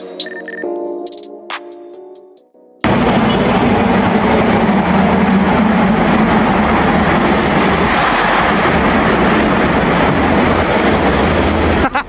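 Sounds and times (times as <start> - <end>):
low engine hum: 2.8 - 11.8
rush of vehicles: 2.8 - 11.9.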